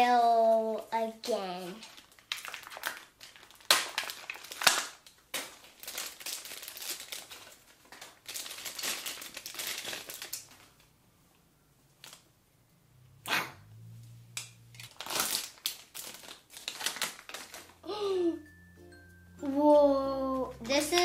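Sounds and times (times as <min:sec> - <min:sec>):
plastic bag crinkling: 0:01.5 - 0:10.9, 0:14.7 - 0:18.1, 0:19.6 - 0:21.0.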